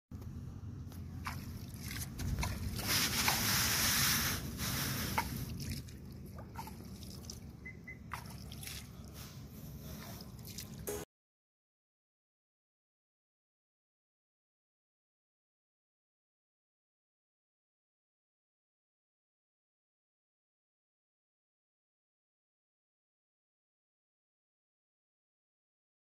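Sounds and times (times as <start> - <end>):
hand splashing water: 1.2 - 9.2, 9.9 - 10.9
water trickling and dripping: 4.7 - 9.2, 9.9 - 10.9.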